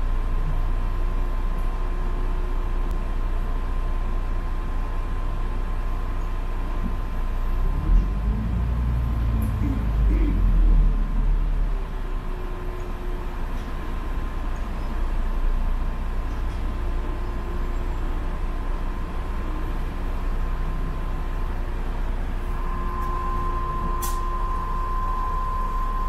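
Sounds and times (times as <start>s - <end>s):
vehicle interior rumble: 0.0s - 26.0s
steady whine: 22.0s - 26.0s.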